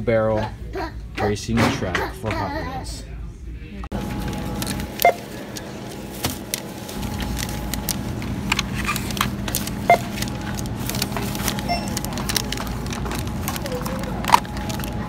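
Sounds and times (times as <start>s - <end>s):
steady store hum: 0.0s - 15.0s
barcode scanner beeping: 5.0s - 5.3s, 9.8s - 10.2s, 11.5s - 12.2s
boxes being handled clicks: 6.4s - 15.0s.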